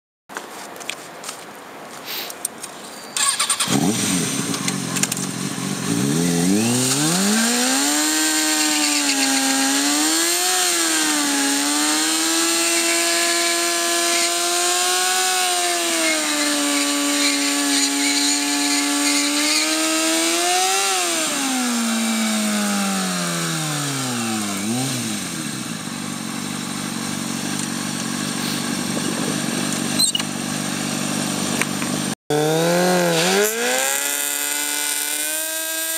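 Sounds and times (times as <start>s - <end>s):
motorcycle engine revving hard: 3.2s - 35.9s.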